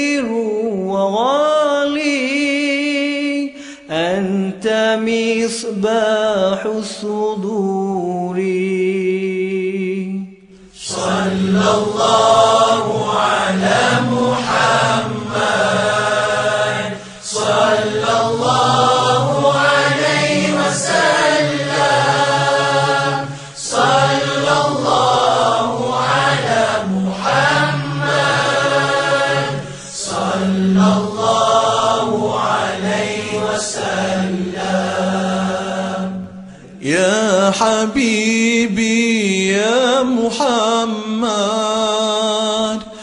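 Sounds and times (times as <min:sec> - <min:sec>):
chanting in slow melodic phrases: 0:07.1 - 0:38.8.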